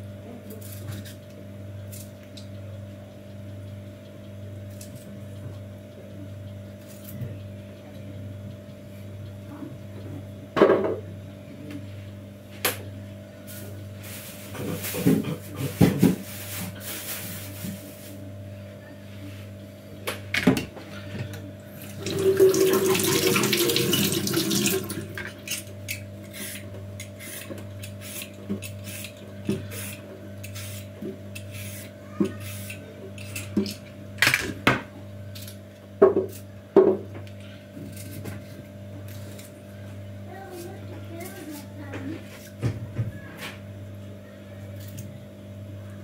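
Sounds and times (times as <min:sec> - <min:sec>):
tap water running: 0:21.8 - 0:25.6.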